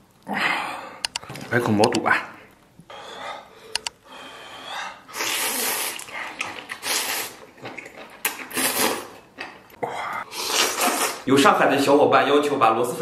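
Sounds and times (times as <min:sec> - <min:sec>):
man slurping noodles: 0:05.0 - 0:09.2, 0:09.8 - 0:11.3.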